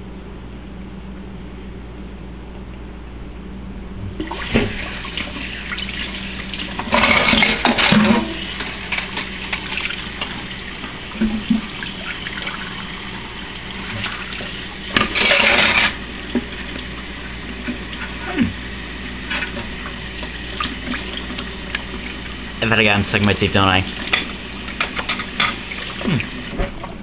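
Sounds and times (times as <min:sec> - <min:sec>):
water splashing in a sink: 0:04.2 - 0:18.1, 0:19.4 - 0:22.4, 0:23.8 - 0:27.0
water running from a tap into a sink: 0:04.2 - 0:18.2, 0:18.8 - 0:22.6, 0:23.2 - 0:26.6.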